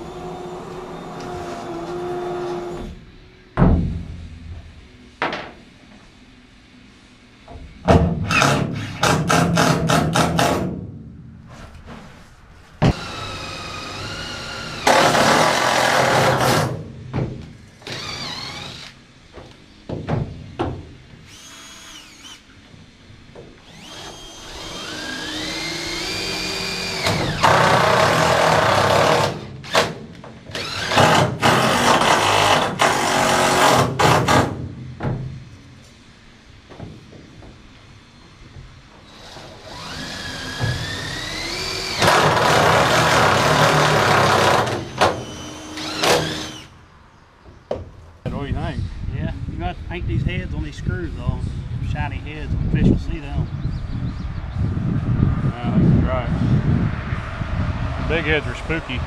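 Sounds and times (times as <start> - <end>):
impact driver hammering: 7.9 - 11.0
drilling noise: 12.8 - 16.8, 17.8 - 19.0, 21.2 - 22.5, 23.6 - 34.6, 39.0 - 46.7
drill motor whining: 12.9 - 16.7, 17.8 - 19.0, 21.3 - 22.5, 23.6 - 29.9, 30.5 - 33.8, 39.1 - 46.7.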